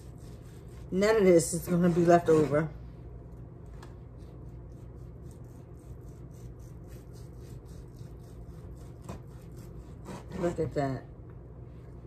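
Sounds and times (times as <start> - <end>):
knife sawing through meat: 0.0 - 2.6, 4.2 - 10.6
low steady hum: 0.0 - 12.0.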